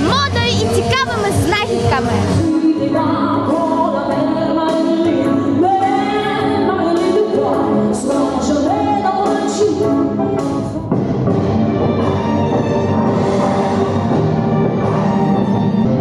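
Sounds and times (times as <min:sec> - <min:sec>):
musical accompaniment: 0:00.0 - 0:16.0
woman singing into microphone: 0:01.7 - 0:10.2.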